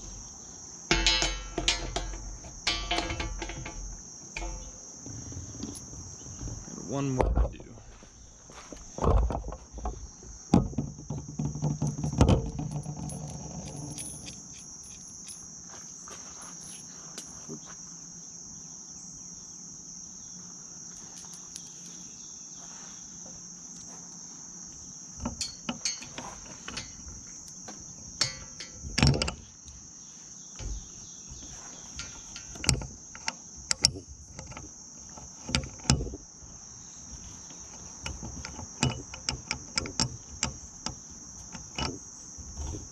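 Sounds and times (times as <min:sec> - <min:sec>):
insects trilling: 0:00.0 - 0:42.9
bolts clicking against metal: 0:00.9 - 0:04.8, 0:25.2 - 0:27.6, 0:28.2 - 0:29.8, 0:31.9 - 0:36.2, 0:37.7 - 0:42.1.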